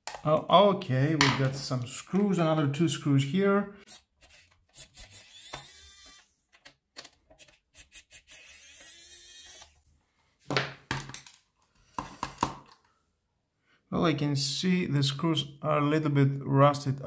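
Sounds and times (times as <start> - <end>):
electric screwdriver whirring: 3.9 - 6.4, 7.4 - 9.8.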